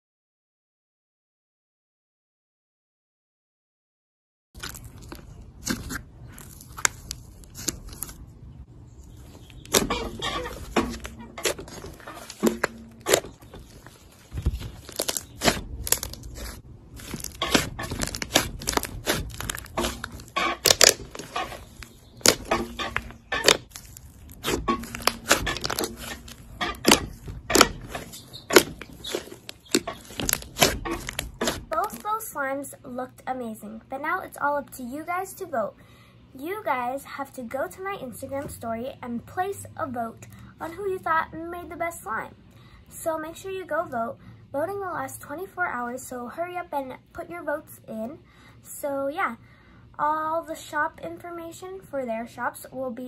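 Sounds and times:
slime squishing: 0:04.6 - 0:08.2, 0:09.1 - 0:32.2
slime tearing: 0:04.6 - 0:08.2, 0:09.5 - 0:32.1.

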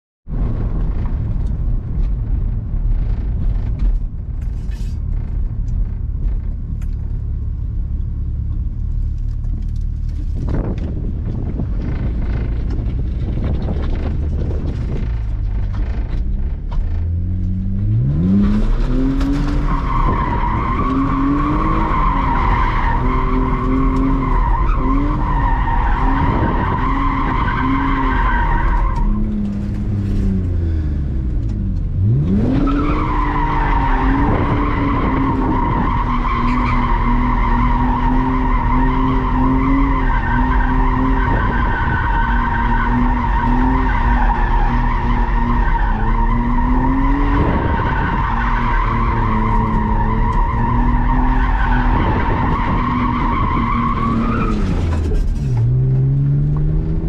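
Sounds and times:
car engine revving: 0:00.4 - 0:57.0
tires squealing: 0:17.8 - 0:57.0.

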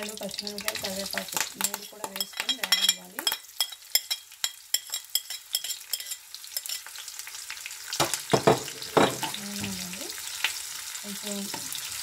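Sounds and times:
onions sizzling in oil: 0:00.0 - 0:12.0
spatula scraping pan: 0:01.6 - 0:06.9.

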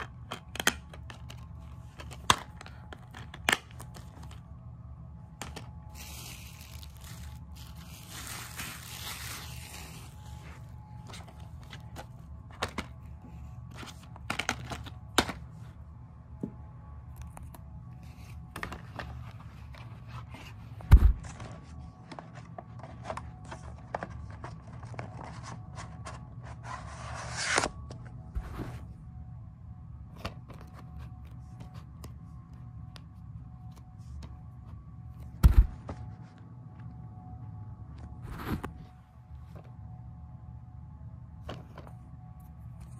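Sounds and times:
steady low hum: 0:00.0 - 0:42.9.

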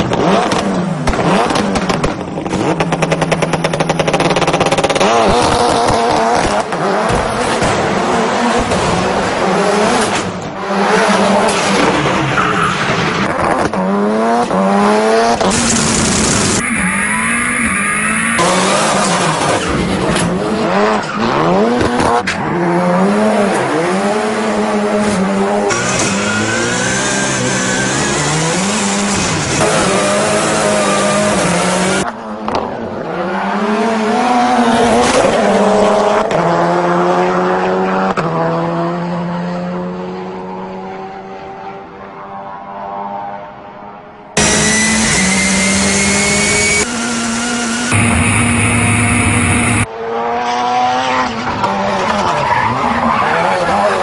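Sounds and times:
car engine revving: 0:00.0 - 0:32.0, 0:44.4 - 0:54.0
tyres squealing and skidding: 0:10.6 - 0:13.6, 0:15.5 - 0:22.9, 0:25.5 - 0:32.0, 0:44.4 - 0:49.9, 0:51.8 - 0:54.0.

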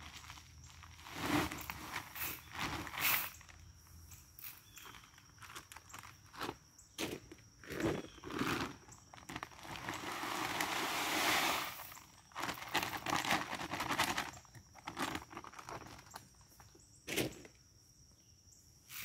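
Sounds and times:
footsteps in dry leaves: 0:00.0 - 0:03.5
feed bag crinkling: 0:00.0 - 0:03.6, 0:04.4 - 0:16.5
corn pouring into metal drum: 0:09.6 - 0:13.3.

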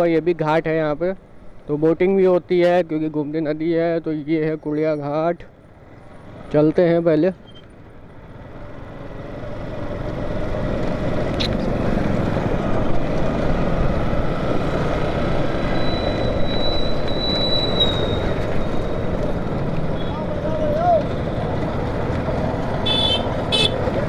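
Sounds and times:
road noise: 0:00.0 - 0:24.0
motorcycle engine: 0:07.5 - 0:24.0.

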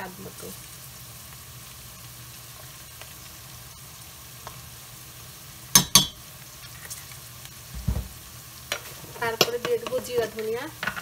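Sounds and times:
onions sizzling in a pot: 0:00.0 - 0:11.0.

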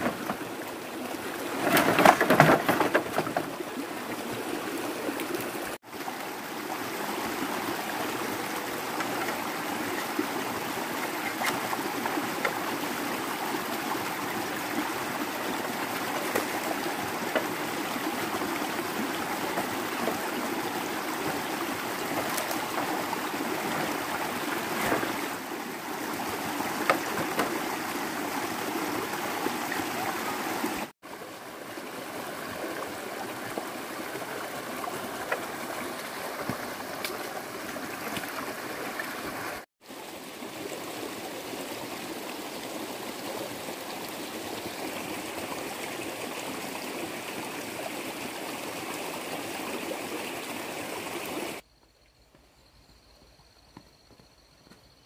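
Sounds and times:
stream running over mud: 0:00.0 - 0:51.6
bamboo poles knocking: 0:01.6 - 0:03.6, 0:16.1 - 0:17.7, 0:26.8 - 0:27.7.

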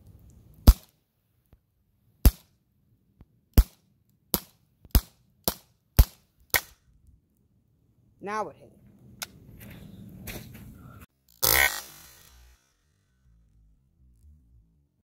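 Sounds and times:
air pistol shots: 0:00.6 - 0:00.9, 0:03.6 - 0:06.8.

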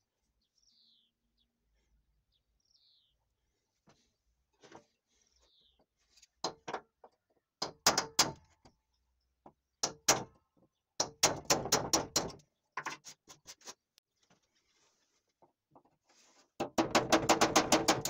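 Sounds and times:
awl scraping cement sheet: 0:13.0 - 0:15.4, 0:16.0 - 0:16.6.

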